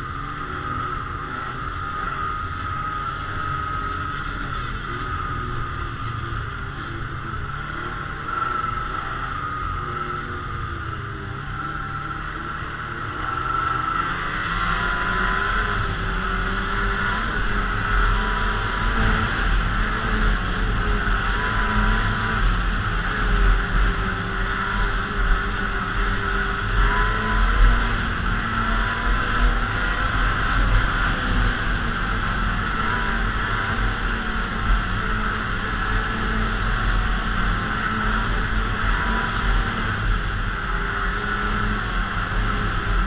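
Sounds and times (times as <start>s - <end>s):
snowmobile engine running: 0.0s - 43.0s.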